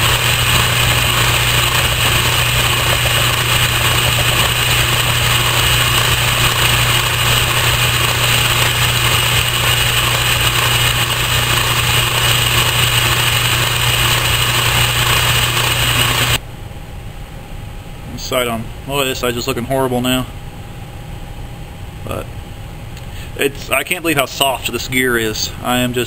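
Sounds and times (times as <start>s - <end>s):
metal lathe hum and whine: 0.0s - 16.4s.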